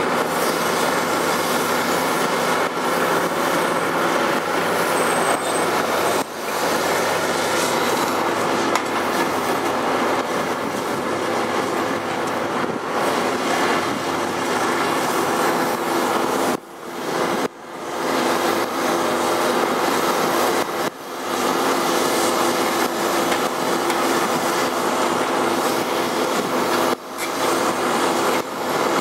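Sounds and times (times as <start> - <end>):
excavator diesel engine: 0.0 - 29.0.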